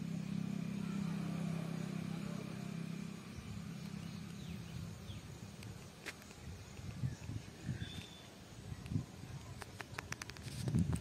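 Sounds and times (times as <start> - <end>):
distant motor engine droning: 0.0 - 11.0
wind rumble on microphone: 3.4 - 11.0
faint bird chirps: 6.2 - 9.7.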